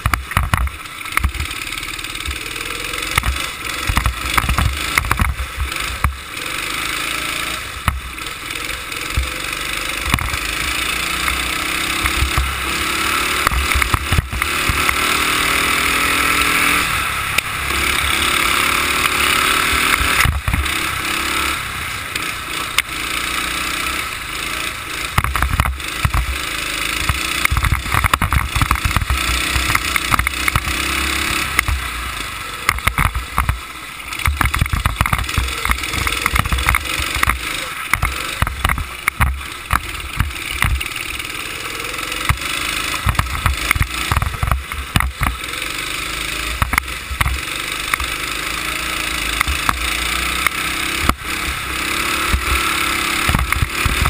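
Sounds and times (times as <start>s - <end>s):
go-kart engine running hard: 0.0s - 54.0s
microphone buffeting and knocks: 20.2s - 20.6s, 27.0s - 30.7s, 34.2s - 40.8s, 43.0s - 45.4s.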